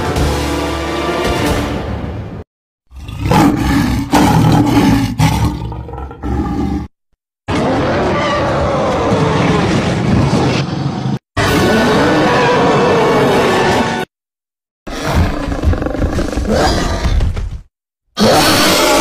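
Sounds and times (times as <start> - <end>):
creature roaring and growling: 2.9 - 6.9, 7.5 - 10.6, 11.4 - 14.1, 14.9 - 17.3, 18.2 - 19.0.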